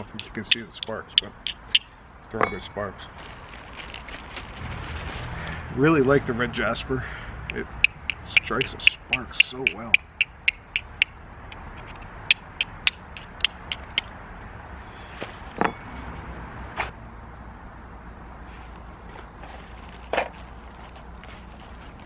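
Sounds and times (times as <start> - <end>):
steel striker clicking on stone: 0.0 - 2.6, 7.4 - 14.1.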